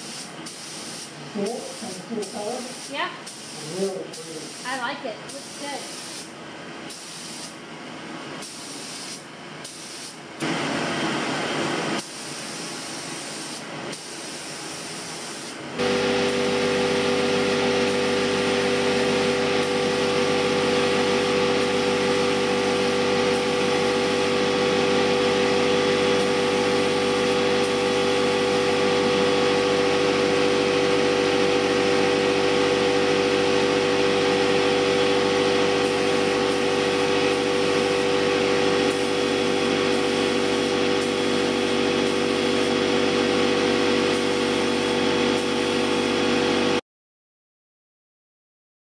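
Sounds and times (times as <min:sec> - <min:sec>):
spray gun hissing: 0:00.0 - 0:06.3, 0:06.9 - 0:07.6, 0:08.4 - 0:10.2, 0:12.0 - 0:30.4, 0:34.5 - 0:46.2
air compressor motor hum: 0:00.0 - 0:46.8.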